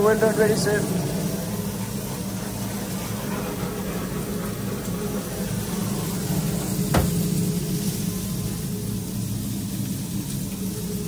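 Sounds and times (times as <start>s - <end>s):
kitchen equipment humming: 0.0s - 11.0s.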